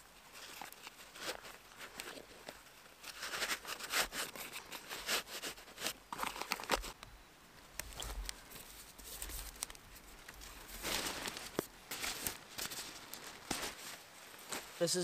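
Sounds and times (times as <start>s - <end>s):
nylon fabric rustling: 8.0s - 15.0s.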